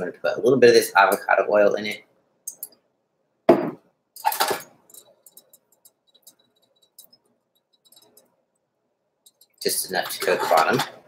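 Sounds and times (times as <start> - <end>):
sharp knock: 3.5 - 3.8
oil ticking and crackling: 4.2 - 10.8.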